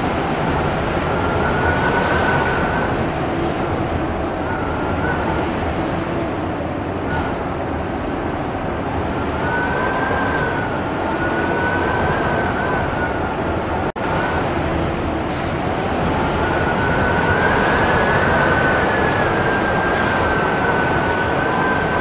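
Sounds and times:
strong gusting wind: 0:00.0 - 0:22.0
faint high whistle: 0:04.4 - 0:06.0, 0:09.3 - 0:13.3.

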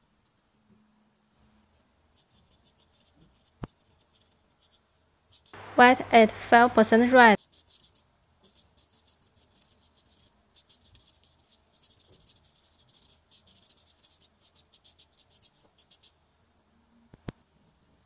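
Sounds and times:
paintbrush scratching on paper: 0:02.1 - 0:05.8, 0:07.0 - 0:16.2.

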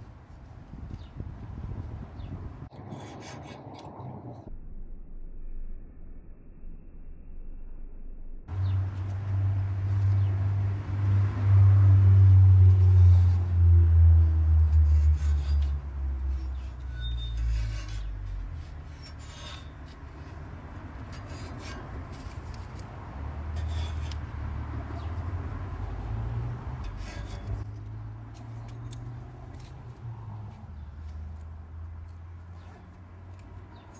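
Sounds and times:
low rumble: 0:01.2 - 0:16.8.

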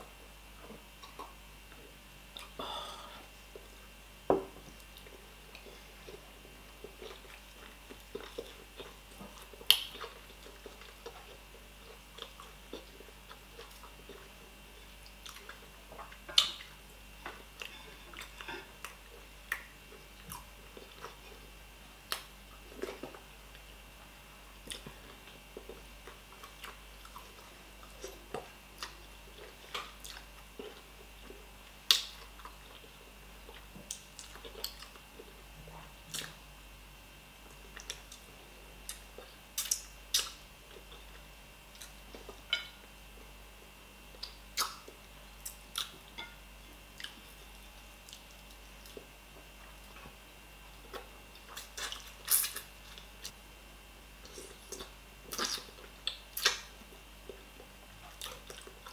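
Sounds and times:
person chewing fish: 0:04.8 - 0:21.5, 0:24.6 - 0:35.4, 0:46.9 - 0:50.0, 0:50.8 - 0:53.4, 0:54.2 - 0:58.9.

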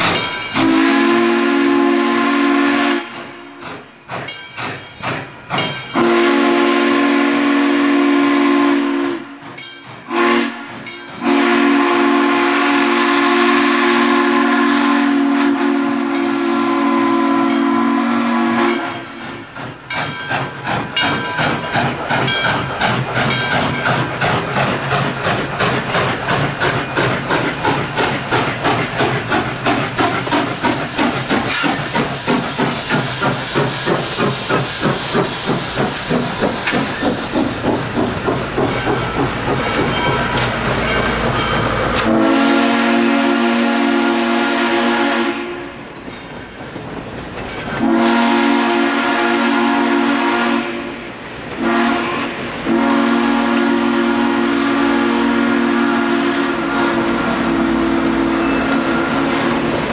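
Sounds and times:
steam locomotive chuffing: 0:00.0 - 0:59.9
steam whistle blasts: 0:00.6 - 0:03.3, 0:06.0 - 0:09.4, 0:10.1 - 0:19.1, 0:41.9 - 0:45.8, 0:47.8 - 0:51.0, 0:51.6 - 0:59.7.

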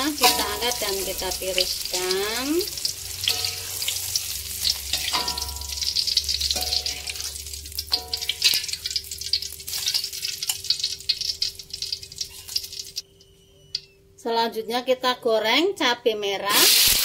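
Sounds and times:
hot oil sizzling and crackling: 0:00.0 - 0:13.0, 0:16.5 - 0:17.0
metal spatula clinking on strainer: 0:03.3 - 0:04.0, 0:04.8 - 0:08.9.

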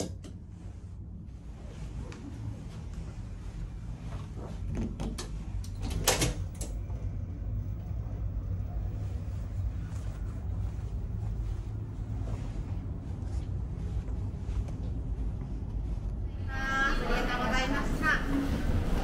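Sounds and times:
ship engines rumbling: 0:06.4 - 0:19.0.

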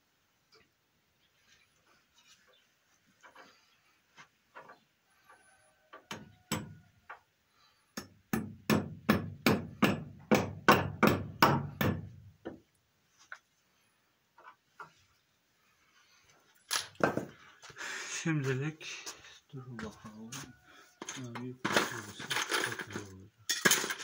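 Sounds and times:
hammer driving nail into wood: 0:08.0 - 0:12.0.

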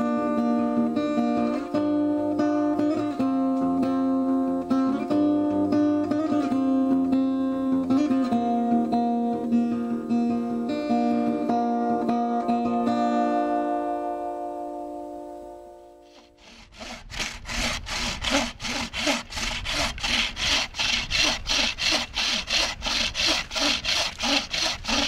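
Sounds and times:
acoustic guitar music: 0:00.0 - 0:16.4.

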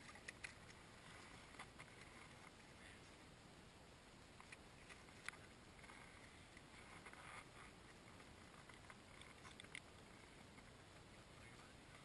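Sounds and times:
small clicks: 0:00.0 - 0:00.8, 0:08.6 - 0:10.0.

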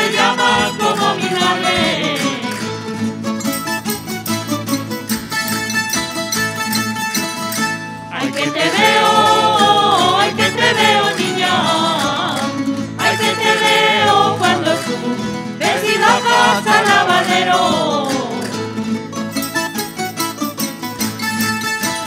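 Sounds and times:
voices singing: 0:00.0 - 0:02.8, 0:08.1 - 0:18.7
plucked string instruments: 0:00.0 - 0:22.0.

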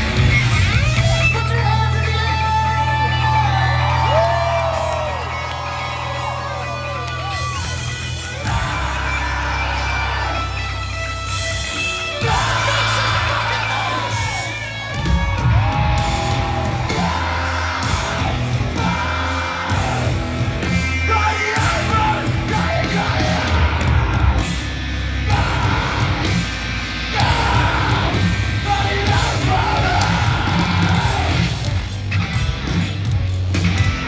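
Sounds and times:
live rock band: 0:00.0 - 0:34.0
vocalist yelling and singing: 0:01.1 - 0:04.0, 0:08.2 - 0:10.8, 0:11.7 - 0:31.6.

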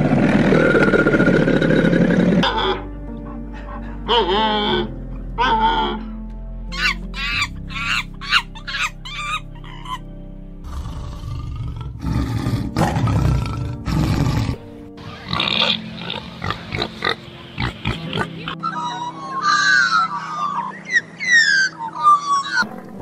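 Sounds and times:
tiger growling: 0:00.0 - 0:06.0, 0:10.6 - 0:18.6
background music: 0:01.0 - 0:23.0
monkeys calling: 0:06.7 - 0:10.0, 0:15.0 - 0:22.7.

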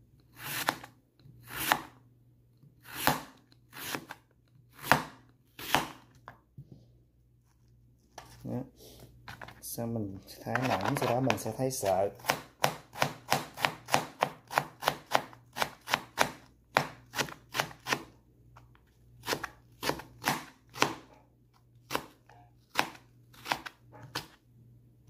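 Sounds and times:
knife cutting on plastic board: 0:00.3 - 0:02.0, 0:02.8 - 0:06.2, 0:10.5 - 0:18.2, 0:19.2 - 0:21.1, 0:21.8 - 0:24.4.

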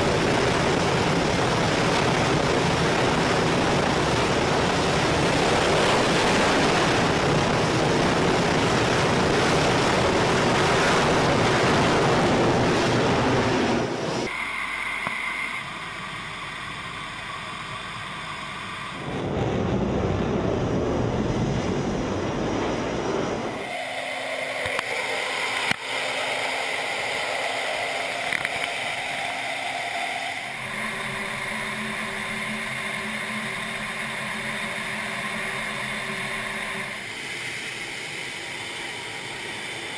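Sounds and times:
jet engine at full power: 0:00.0 - 0:39.9
steady engine hum: 0:00.0 - 0:39.9
loud rushing noise: 0:18.5 - 0:37.2.

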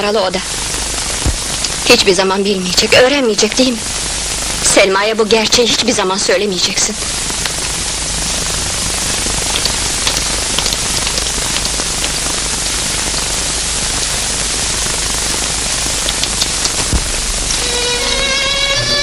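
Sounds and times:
faint crackles: 0:00.0 - 0:18.1
film soundtrack hiss: 0:00.0 - 0:19.0
low hum: 0:16.4 - 0:19.0
sustained violin note: 0:17.3 - 0:19.0.

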